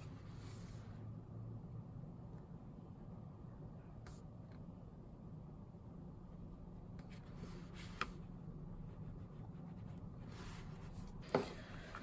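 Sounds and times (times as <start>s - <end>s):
low steady hum: 0.0s - 12.0s
brush stroking paper: 8.8s - 11.9s.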